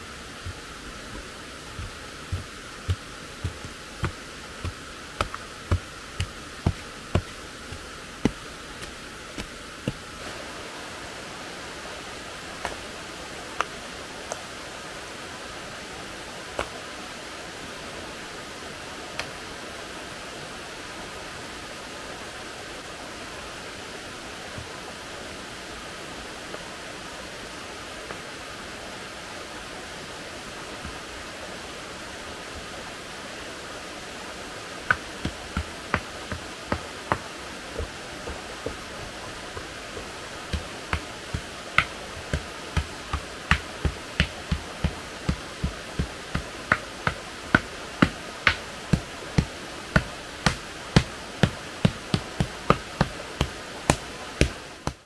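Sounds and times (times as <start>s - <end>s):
stream rushing: 0.0s - 55.0s
hand tool striking earth: 0.4s - 10.1s, 34.9s - 55.0s.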